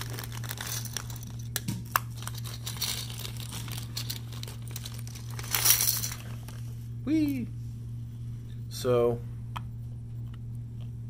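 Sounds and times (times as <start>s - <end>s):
plastic bag crinkling: 0.0s - 1.5s, 2.1s - 6.6s
low hum: 0.0s - 11.0s
plastic pieces clicking: 2.2s - 6.2s.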